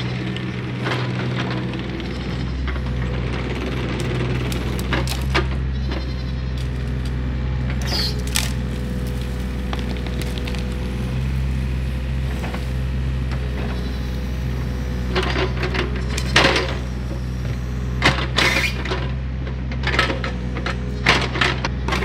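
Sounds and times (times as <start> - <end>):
diesel engine running: 0.0 - 22.0
wood cracking: 3.8 - 5.6, 6.5 - 13.7
goat bleating: 5.6 - 6.9, 13.4 - 14.5.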